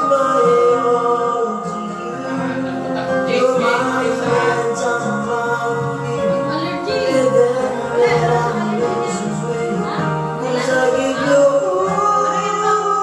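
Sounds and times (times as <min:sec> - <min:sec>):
backing track music: 0:00.0 - 0:13.0
man singing into a microphone: 0:00.0 - 0:13.0.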